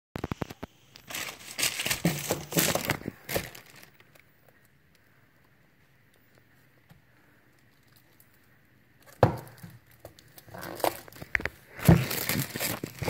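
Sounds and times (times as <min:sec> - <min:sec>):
packaging crinkling and rustling: 0:00.2 - 0:04.7, 0:07.6 - 0:13.0.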